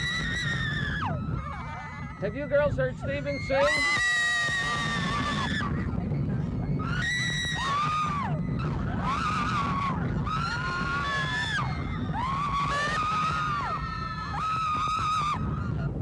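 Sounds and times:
women screaming: 0.0 - 15.9
roller coaster cars rumbling: 0.0 - 16.0.

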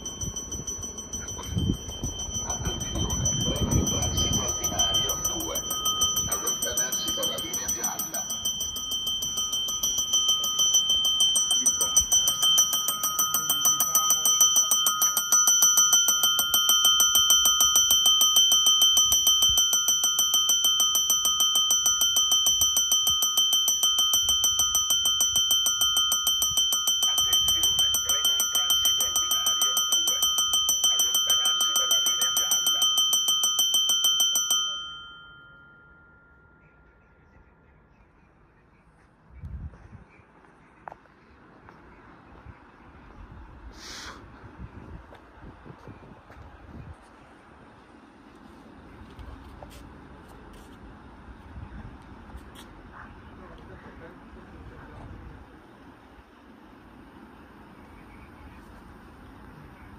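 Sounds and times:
electric bell ringing: 0.0 - 37.4.

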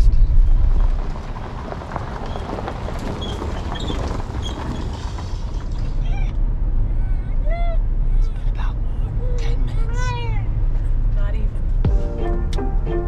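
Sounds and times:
low steady rumble: 0.0 - 3.0, 4.8 - 13.0
tyres crunching on gravel: 0.3 - 6.1.

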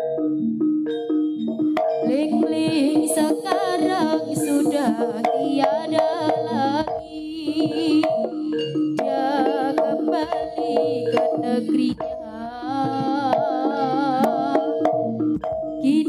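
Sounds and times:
ringing metal percussion: 0.0 - 16.0
wavering ornamented melody: 0.0 - 16.0
drum strokes: 1.4 - 16.0.

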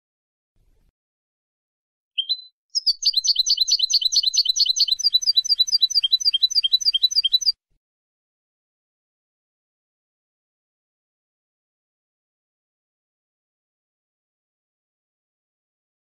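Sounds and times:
small songbird trilling: 2.2 - 7.5.

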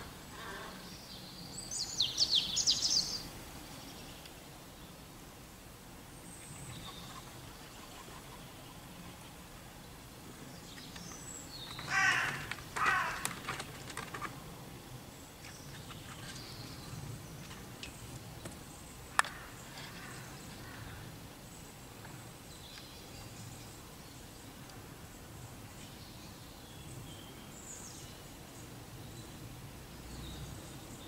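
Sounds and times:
crow cawing: 11.8 - 13.4.

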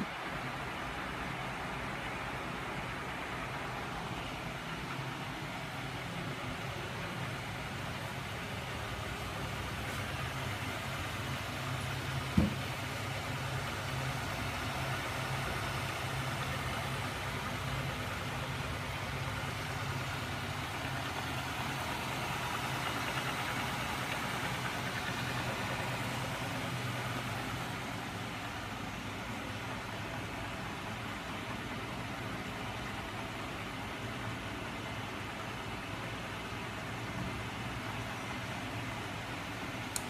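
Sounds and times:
sharp thump: 12.3 - 12.7.

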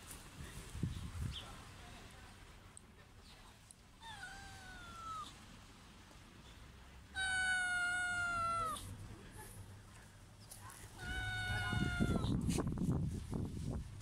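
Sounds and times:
cat meowing: 4.0 - 5.4, 7.1 - 8.9, 11.0 - 12.5.

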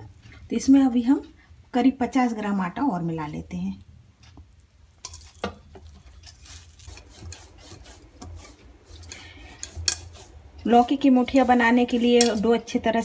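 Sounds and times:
hands kneading dough in metal bowl: 5.2 - 13.0.

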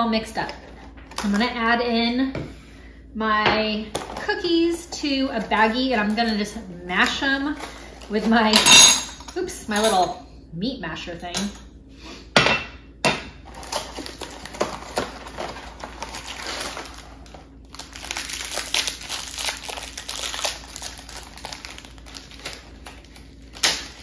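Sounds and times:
plastic sleeve crinkling: 13.5 - 24.0.

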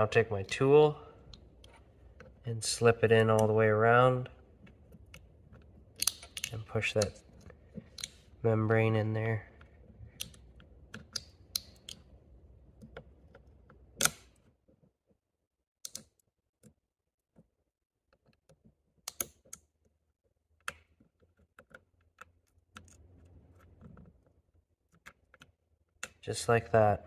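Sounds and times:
small metal clicks and taps: 4.6 - 8.3, 9.6 - 12.1, 15.8 - 16.8, 18.1 - 19.7.

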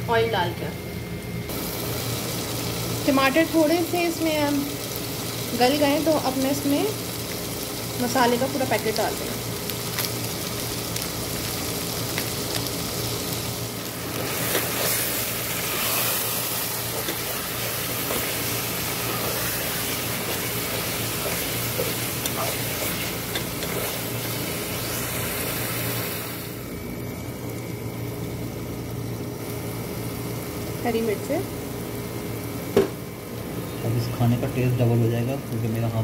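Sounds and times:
masala sizzling in oil: 1.4 - 36.0
spatula stirring in pot: 14.3 - 25.1.

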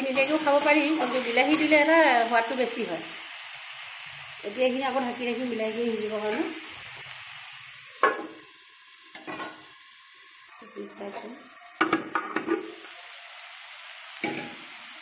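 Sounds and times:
sizzling in oil: 0.0 - 15.0.

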